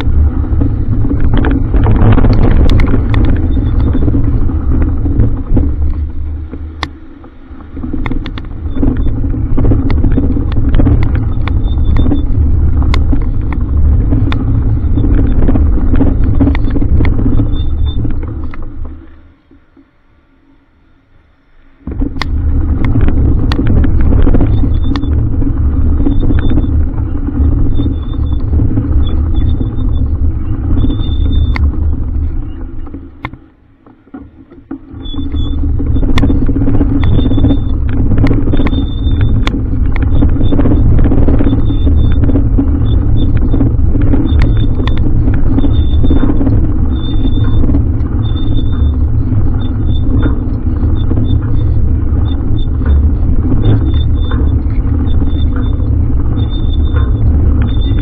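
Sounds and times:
wind and road noise rumble: 0.0 - 58.0.

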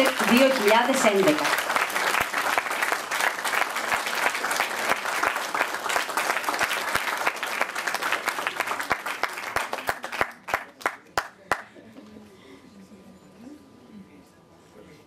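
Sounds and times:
audience applauding: 0.0 - 11.7.

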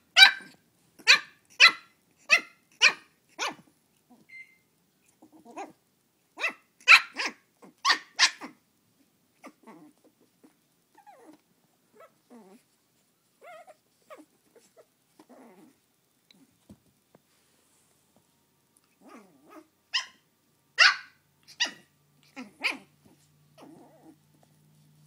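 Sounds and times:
puppy yapping: 0.2 - 4.5, 6.4 - 8.6, 19.0 - 20.2, 20.8 - 24.2.

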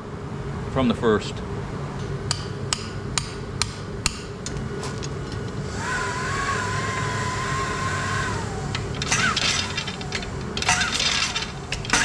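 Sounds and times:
low machine hum: 0.0 - 12.0
hammer striking hot metal: 2.3 - 4.4
high machine whine: 4.4 - 12.0.

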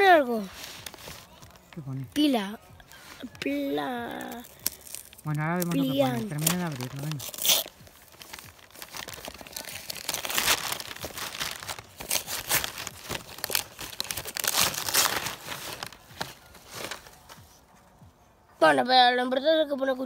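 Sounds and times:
paper tearing and crumpling: 0.0 - 1.5, 4.0 - 17.4.

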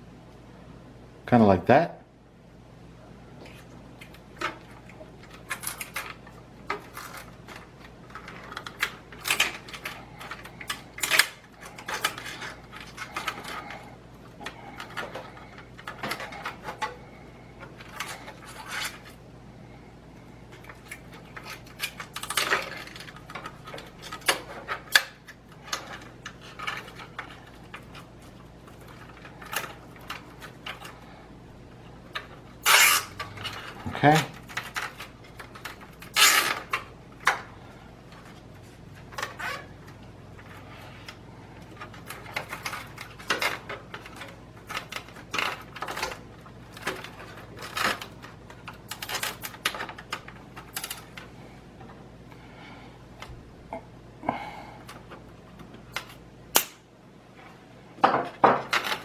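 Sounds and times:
cables and zip tie rattling: 4.2 - 19.2, 31.8 - 51.3.

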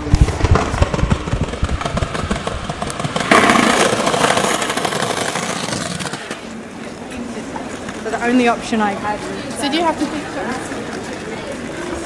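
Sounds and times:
skateboard wheels rolling on concrete: 0.0 - 12.0
street noise: 0.0 - 12.0.

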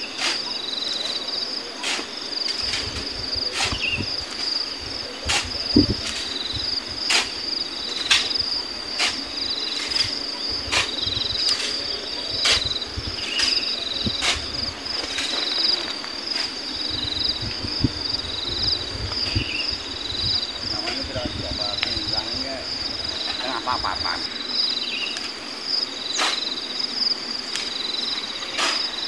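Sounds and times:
shovel scooping and throwing sand: 0.0 - 1.2, 1.8 - 4.6, 5.2 - 16.6, 26.1 - 26.6, 27.6 - 29.0
insect chirring: 0.0 - 29.0
pulsed insect chirp: 0.0 - 29.0.

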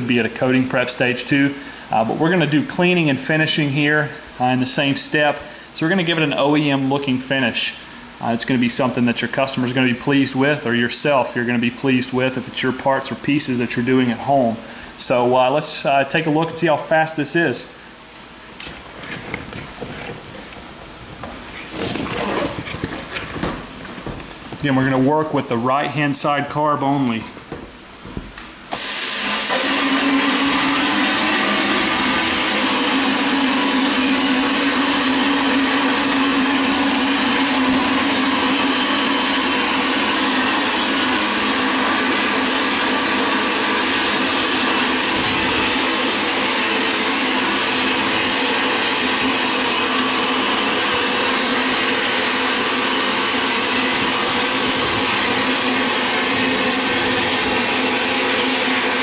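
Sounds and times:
vapor blasting gun hissing: 28.7 - 59.0.

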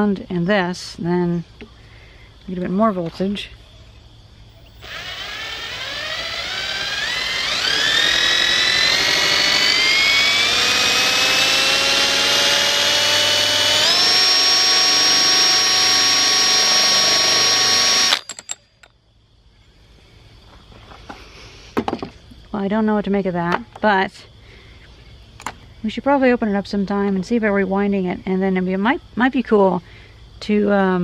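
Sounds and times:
drill spinning generator whine: 4.5 - 18.8.

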